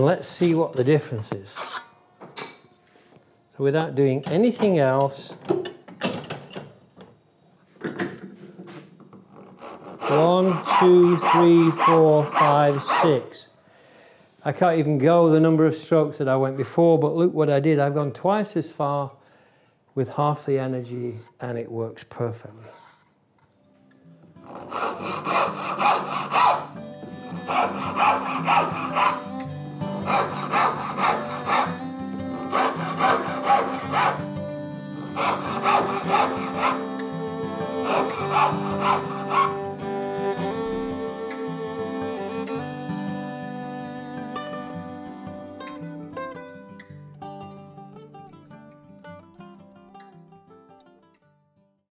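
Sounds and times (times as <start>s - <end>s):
backsaw cutting wood: 9.5s - 13.3s, 24.4s - 34.3s, 34.9s - 39.7s
handsaw rasping through wood: 9.6s - 13.2s, 24.4s - 29.3s, 29.9s - 34.2s, 35.0s - 36.9s, 37.7s - 39.6s
man counting aloud: 10.1s - 13.3s.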